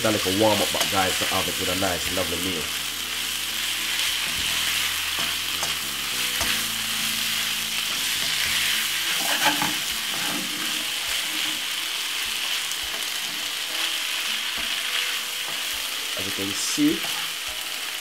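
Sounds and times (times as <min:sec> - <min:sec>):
food sizzling in frying pan: 0:00.0 - 0:18.0
wooden spoon scraping and tapping pan: 0:09.1 - 0:10.8.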